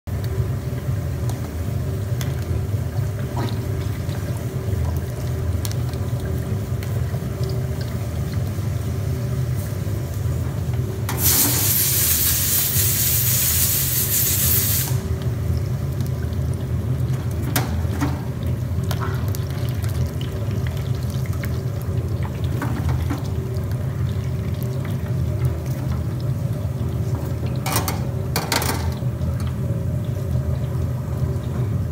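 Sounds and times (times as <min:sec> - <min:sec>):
constant low hum: 0:00.1 - 0:11.7, 0:15.0 - 0:31.9
food deep-frying in oil: 0:00.1 - 0:31.9
loud hiss: 0:11.2 - 0:15.0.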